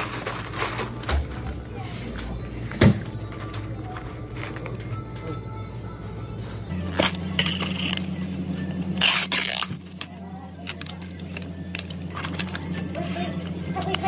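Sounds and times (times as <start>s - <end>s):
steady low hum: 0.0s - 14.0s
lid film crinkling and tearing: 9.0s - 9.8s.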